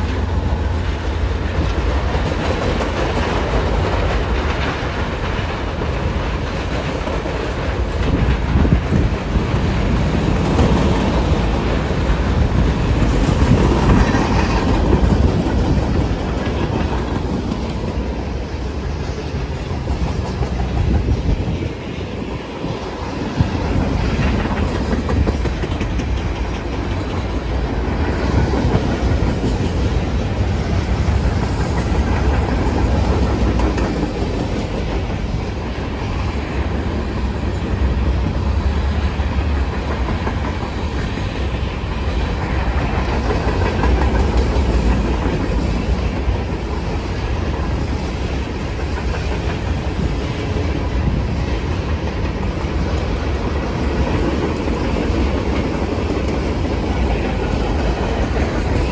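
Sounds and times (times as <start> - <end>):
low train rumble: 0.0 - 58.9
train wheels clicking over rail joints: 0.0 - 58.9.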